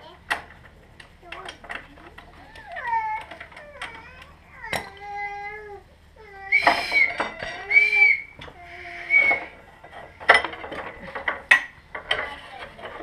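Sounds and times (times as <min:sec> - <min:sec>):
wavering high whistling: 0:06.5 - 0:09.6.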